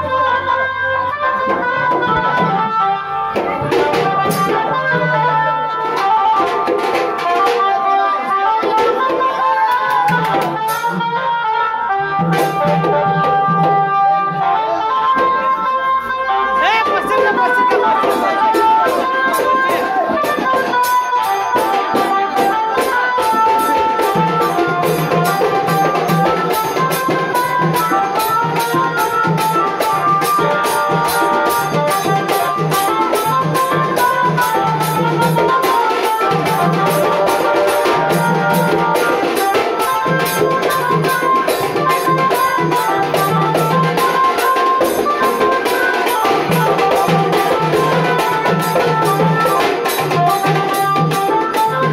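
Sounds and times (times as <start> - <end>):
folk-style music: 0.0 - 51.9.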